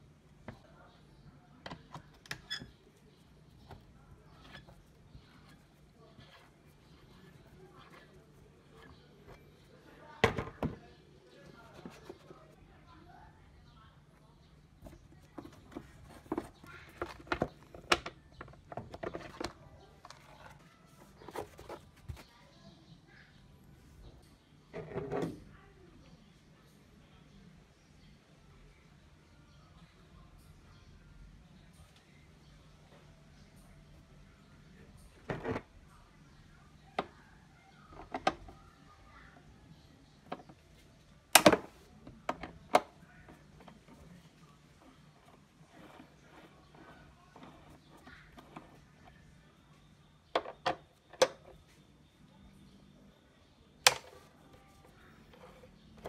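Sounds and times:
plastic clicks and knocks: 14.8s - 20.6s, 41.4s - 43.0s, 50.3s - 51.6s, 53.8s - 54.3s.

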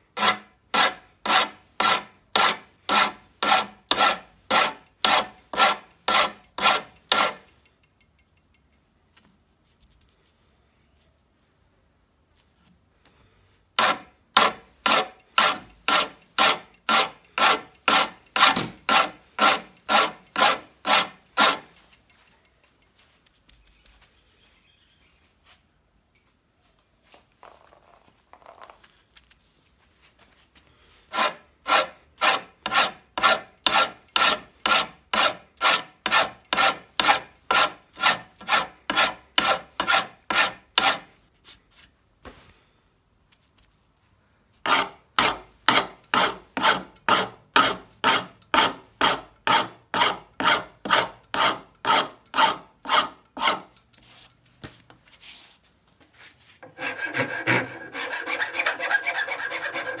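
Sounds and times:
file rasping on metal blade: 0.2s - 7.5s, 13.8s - 21.7s, 31.1s - 41.1s, 44.6s - 53.8s, 56.6s - 60.0s.

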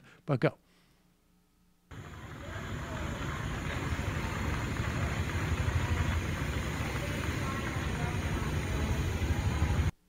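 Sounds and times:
white-noise machine rushing: 1.9s - 10.0s.

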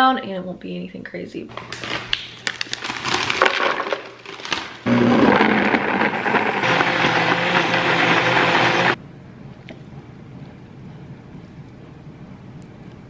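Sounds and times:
blender motor blending: 4.8s - 9.0s.

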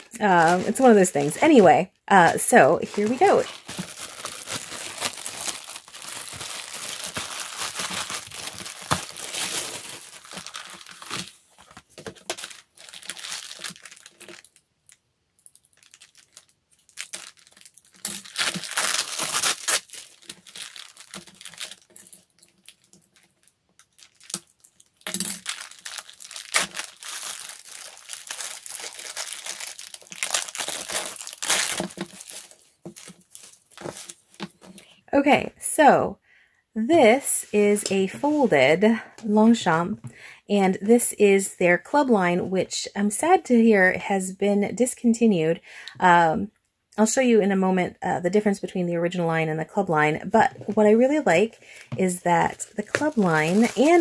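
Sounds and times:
plastic wrapping crinkling: 0.0s - 34.9s, 50.4s - 54.0s.

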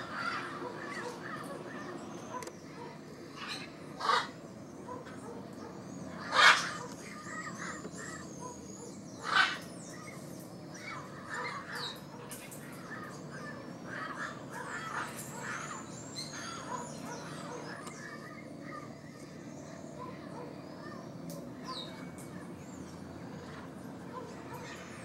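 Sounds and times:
parrot squawking: 3.4s - 4.4s, 6.2s - 8.6s, 9.2s - 9.6s.

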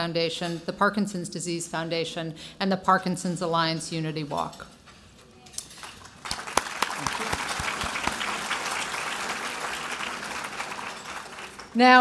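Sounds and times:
audience applauding: 5.8s - 11.8s.

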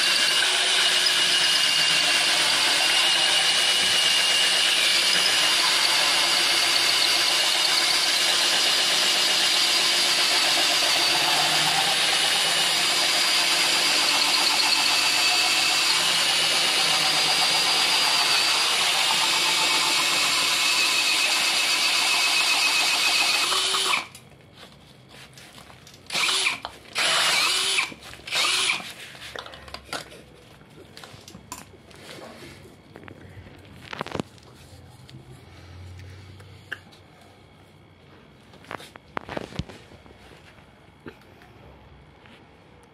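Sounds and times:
drill grinding coconut shell: 0.0s - 24.2s, 26.1s - 29.0s.

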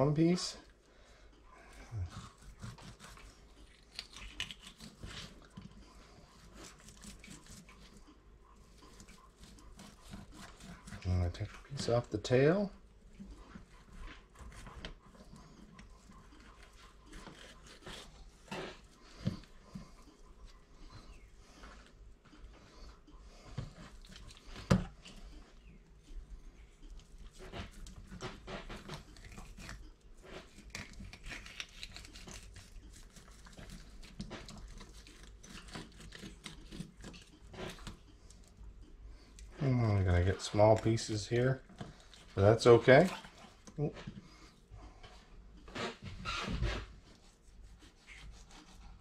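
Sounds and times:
dog panting: 1.1s - 3.8s, 4.7s - 31.4s
knife scraping on cutting board: 2.0s - 3.8s, 6.4s - 8.0s, 8.7s - 11.9s, 16.0s - 19.6s, 45.7s - 49.0s.

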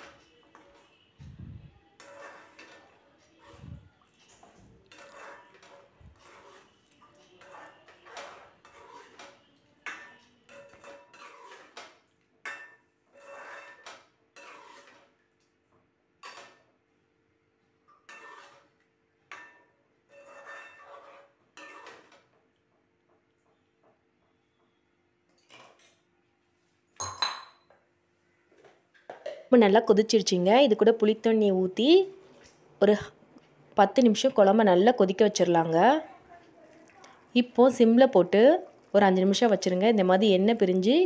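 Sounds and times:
metal spoon scraping a pan: 0.0s - 1.1s, 1.9s - 15.2s, 17.9s - 22.3s.

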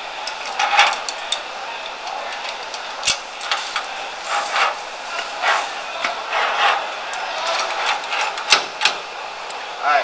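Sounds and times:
metal clicks: 0.2s - 3.9s
rasping metal scrapes: 3.6s - 6.9s.

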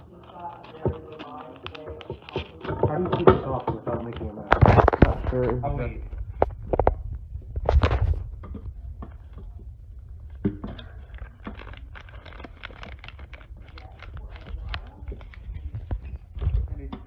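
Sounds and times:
rustling: 0.0s - 17.0s
plastic bowl and lid clattering: 0.8s - 5.9s.

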